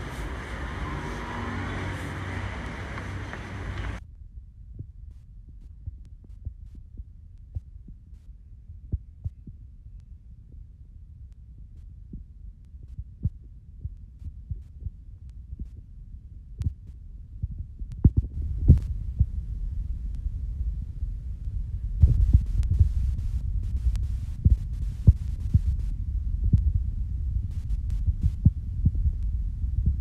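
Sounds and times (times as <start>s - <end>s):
low rumble: 0.0s - 30.0s.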